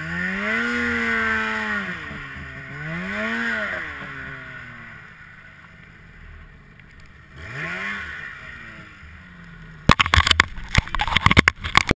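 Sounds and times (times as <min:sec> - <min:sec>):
snowmobile engine revving: 0:00.0 - 0:09.9
sharp knocks and crackles: 0:09.8 - 0:12.0.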